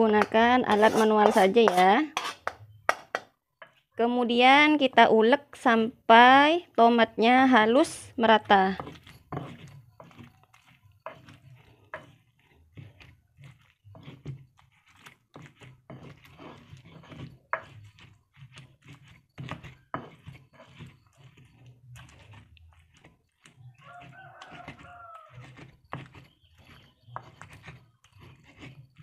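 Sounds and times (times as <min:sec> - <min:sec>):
pestle knocking on mortar: 0:00.0 - 0:03.8, 0:08.7 - 0:10.3, 0:15.3 - 0:21.6.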